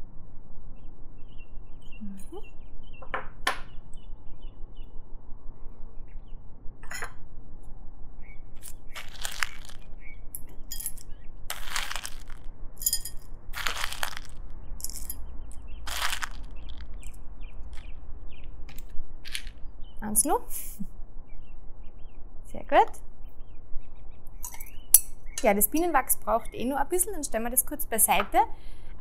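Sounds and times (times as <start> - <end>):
butter pieces clinking into vessel: 10.4 - 15.2.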